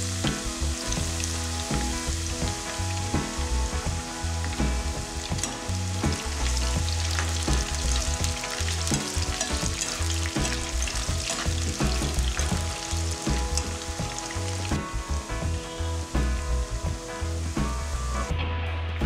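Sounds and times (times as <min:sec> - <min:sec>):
vegetables frying in hot oil: 0:00.0 - 0:14.8.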